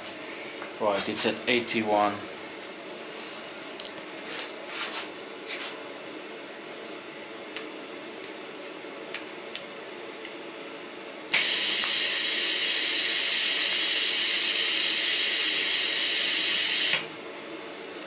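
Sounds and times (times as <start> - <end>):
welding arc hissing: 11.3 - 17.0.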